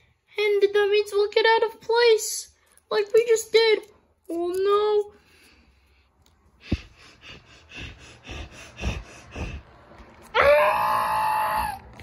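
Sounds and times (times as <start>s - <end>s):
person blowing puffs of air: 6.6s - 10.0s
loud drawn-out vocal cry: 10.3s - 11.9s.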